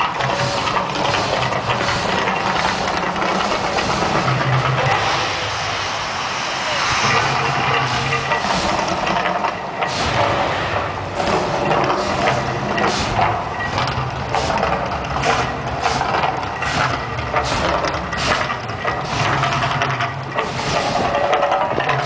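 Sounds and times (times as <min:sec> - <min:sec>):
steady low rumble: 0:00.0 - 0:22.0
fire jets whooshing and hissing: 0:00.4 - 0:13.3, 0:15.2 - 0:19.3.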